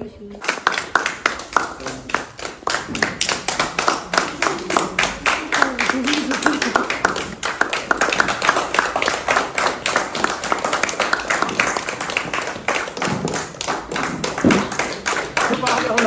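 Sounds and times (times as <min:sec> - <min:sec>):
people clapping: 0:00.4 - 0:16.0.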